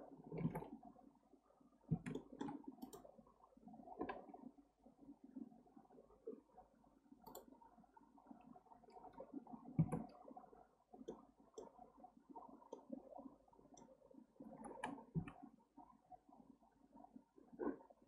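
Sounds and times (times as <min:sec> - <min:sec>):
mouse and keyboard clicks: 0:01.9 - 0:03.1.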